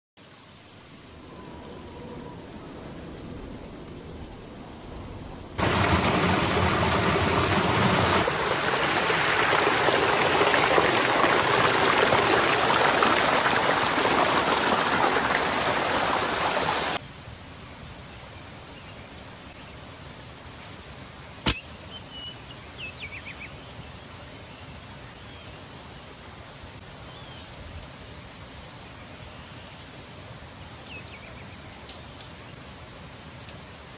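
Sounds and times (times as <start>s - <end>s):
water rushing over rocks: 5.6s - 17.0s
sharp click: 21.4s - 21.7s.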